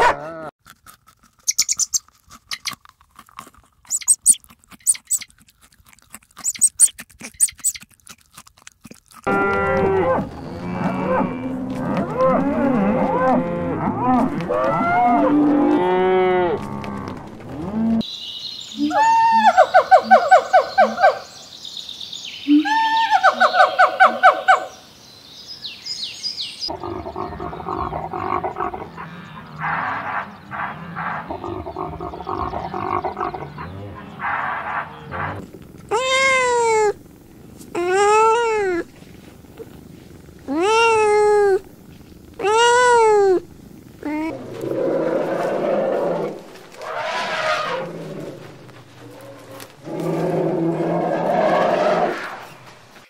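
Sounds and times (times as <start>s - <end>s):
cattle mooing: 9.2s - 18.0s
kitten meowing: 35.9s - 37.0s, 37.8s - 38.8s, 40.5s - 41.6s, 42.4s - 43.4s.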